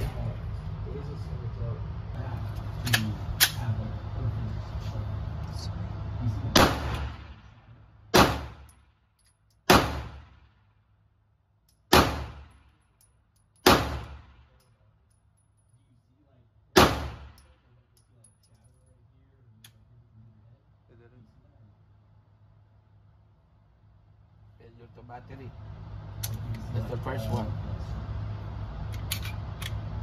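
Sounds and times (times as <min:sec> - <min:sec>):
pistol shots echoing indoors: 0:08.1 - 0:08.7, 0:09.6 - 0:10.5, 0:11.9 - 0:12.6, 0:16.8 - 0:17.5.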